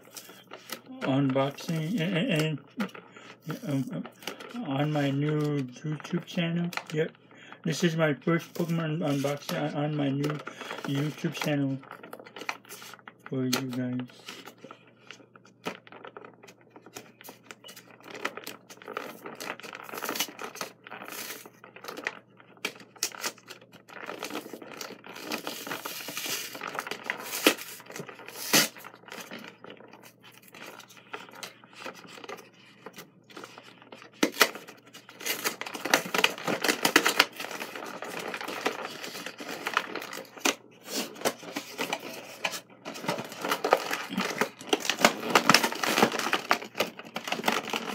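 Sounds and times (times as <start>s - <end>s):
cardboard tearing and crinkling: 0.0s - 5.4s, 7.7s - 47.9s.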